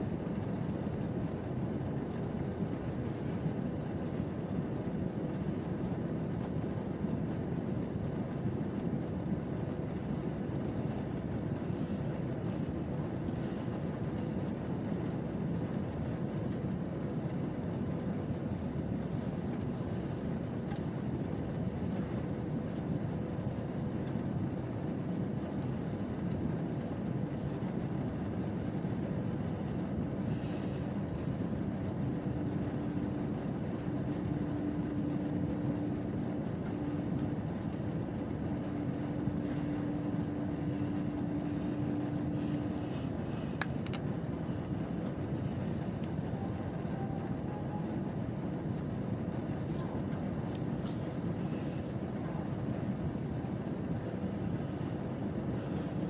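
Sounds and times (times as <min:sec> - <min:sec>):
low steady hum: 0:00.0 - 0:56.0
train interior rumble: 0:00.0 - 0:56.0.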